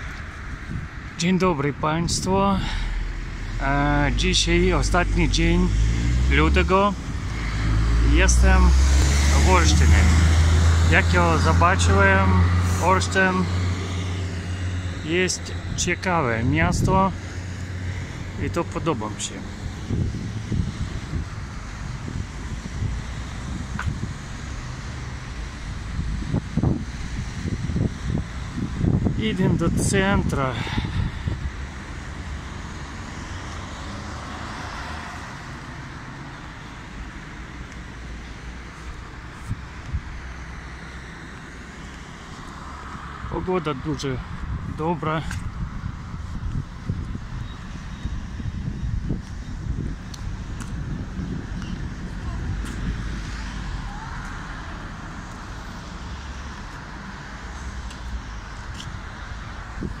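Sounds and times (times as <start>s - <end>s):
traffic hum: 0.0s - 60.0s
car passing by: 2.1s - 29.0s, 30.4s - 44.5s.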